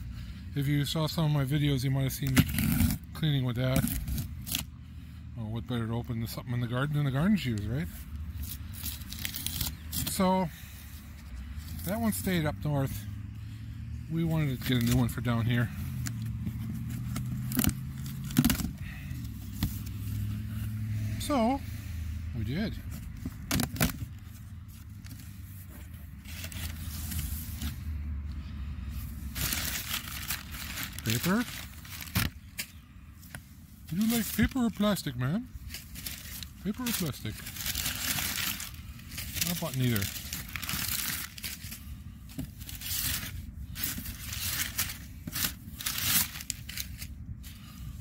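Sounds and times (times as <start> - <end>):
cardboard and paper rustling: 1.2 - 4.7, 6.2 - 13.0, 14.1 - 20.6, 22.4 - 48.0.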